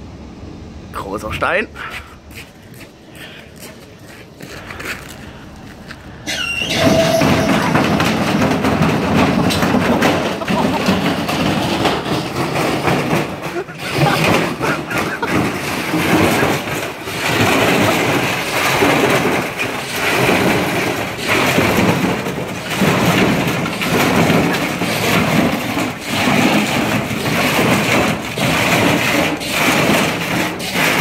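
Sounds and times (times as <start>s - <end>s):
washing machine banging and rattling: 6.3s - 31.0s.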